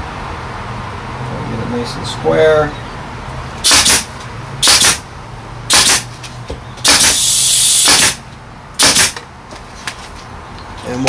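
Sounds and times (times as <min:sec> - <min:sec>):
staple gun firing: 0:03.7 - 0:05.0, 0:05.7 - 0:06.0, 0:06.8 - 0:08.2, 0:08.8 - 0:09.2
air hiss: 0:06.8 - 0:08.2.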